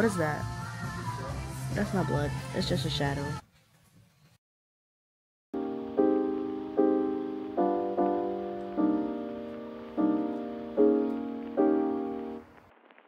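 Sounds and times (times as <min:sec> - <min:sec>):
piano chords: 0:05.6 - 0:12.5.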